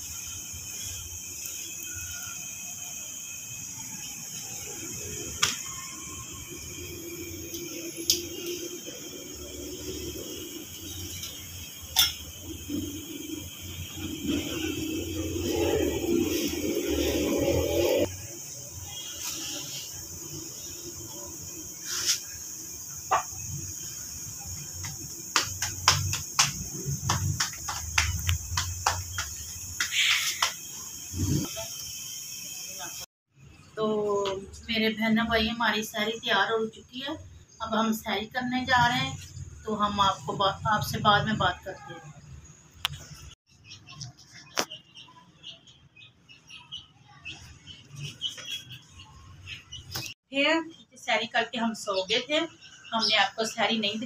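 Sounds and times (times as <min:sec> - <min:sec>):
steady high hiss: 0:00.0 - 0:33.1
metal tongs clinking on griddle: 0:11.1 - 0:12.2
palms slapping dough: 0:24.8 - 0:30.6.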